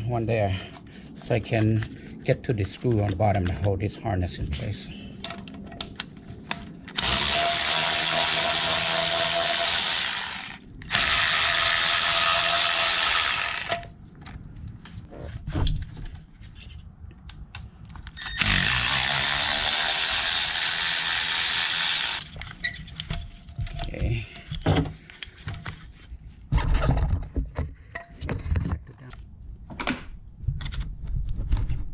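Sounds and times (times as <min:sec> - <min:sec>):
cordless power driver running: 0:06.9 - 0:13.9, 0:18.3 - 0:22.3.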